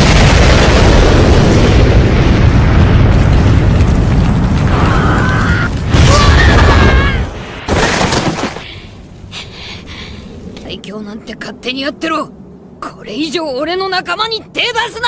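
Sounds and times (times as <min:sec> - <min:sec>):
deep booming punch blast: 0:00.0 - 0:04.8.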